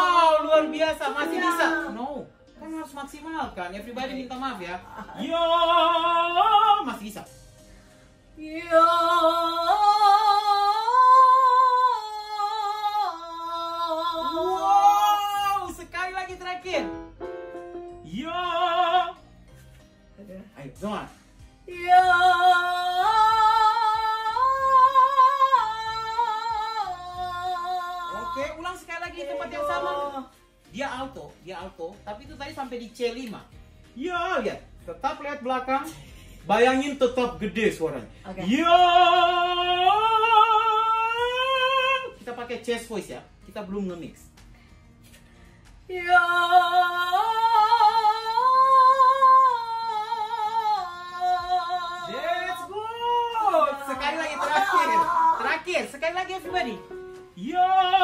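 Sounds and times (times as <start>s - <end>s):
woman singing vocal exercise: 8.4s - 15.7s, 21.7s - 30.3s, 45.9s - 52.2s.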